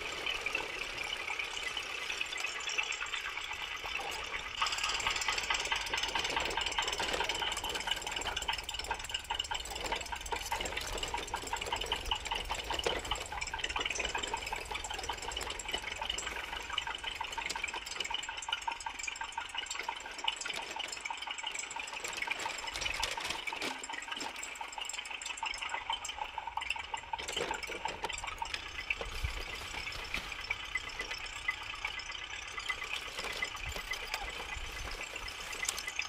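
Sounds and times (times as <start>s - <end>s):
tractor engine chugging: 0.0s - 36.0s.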